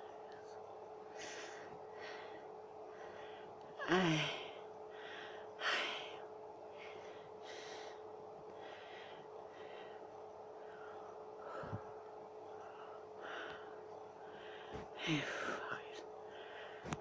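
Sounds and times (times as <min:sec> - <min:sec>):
faint steady hum: 0:00.0 - 0:17.0
woman gasping: 0:03.8 - 0:06.2, 0:14.4 - 0:15.8.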